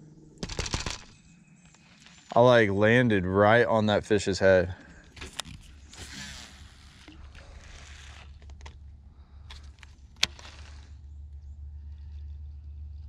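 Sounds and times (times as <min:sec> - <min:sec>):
fishing reel clicks and rustling: 0:00.4 - 0:02.4, 0:05.0 - 0:13.0.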